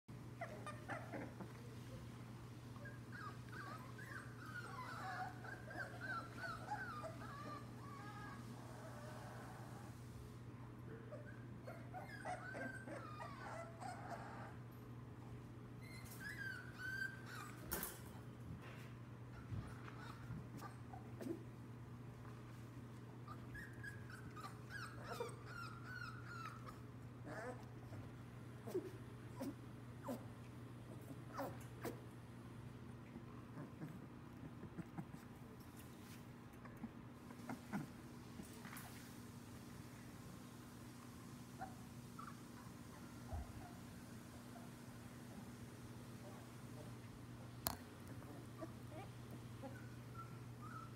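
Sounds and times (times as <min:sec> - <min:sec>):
puppies whining and whimpering: 0:00.3 - 0:01.8, 0:02.7 - 0:10.0, 0:11.0 - 0:14.7, 0:15.8 - 0:18.1, 0:19.4 - 0:21.5, 0:23.2 - 0:30.3, 0:41.5 - 0:45.0, 0:48.1 - 0:50.9.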